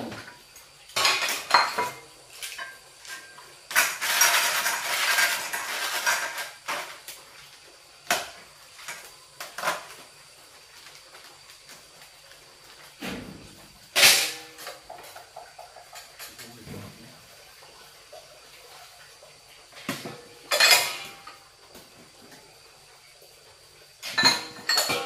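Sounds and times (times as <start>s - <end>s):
dishes and cutlery clinking: 0.0s - 7.0s, 13.9s - 17.0s, 19.8s - 21.4s, 24.0s - 25.0s.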